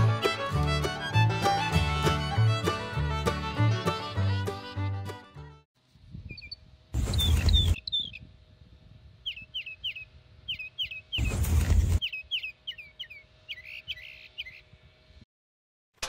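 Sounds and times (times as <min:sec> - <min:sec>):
small birds chirping: 0:06.2 - 0:08.4, 0:09.2 - 0:14.9.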